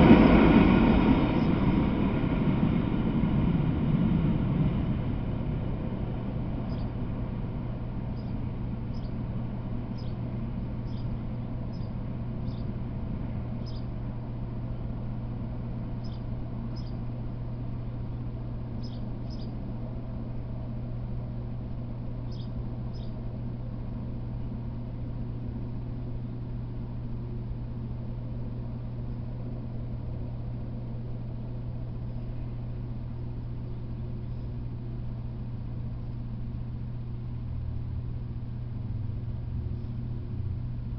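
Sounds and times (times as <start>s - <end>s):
steady low hum: 0.0s - 40.9s
small bird chirping: 6.6s - 7.0s, 8.1s - 9.2s, 9.9s - 10.2s, 10.8s - 12.8s, 13.6s - 13.9s, 16.0s - 17.0s, 18.8s - 19.6s, 22.2s - 23.2s, 34.2s - 34.6s.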